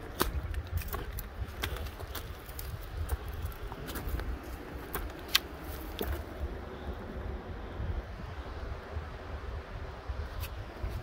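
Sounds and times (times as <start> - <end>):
footsteps crunching on dirt slope: 0.0 - 6.4.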